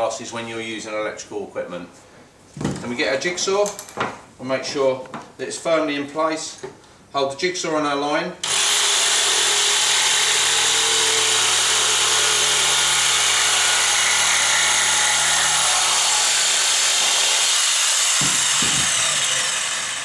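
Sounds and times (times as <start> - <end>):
electric jigsaw cutting wood: 8.4 - 20.0.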